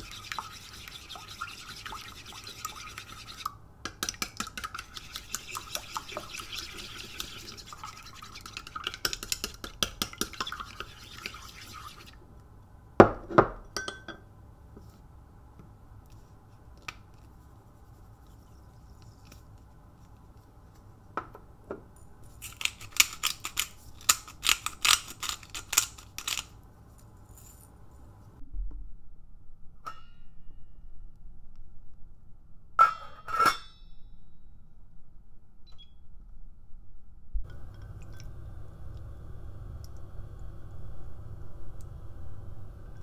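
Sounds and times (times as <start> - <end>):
chopsticks beating eggs in bowl: 0.0 - 12.2
pepper grinder clicking: 22.4 - 26.5.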